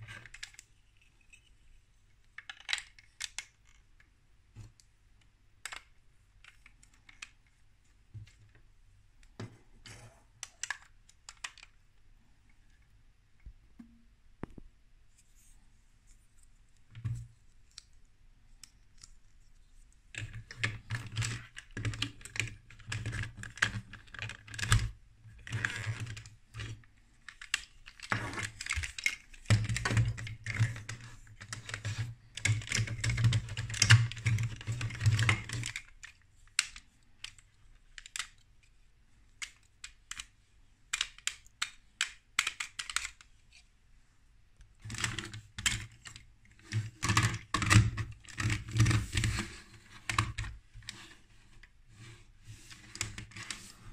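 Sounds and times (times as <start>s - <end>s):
plastic bricks clicking: 40.9s - 43.3s.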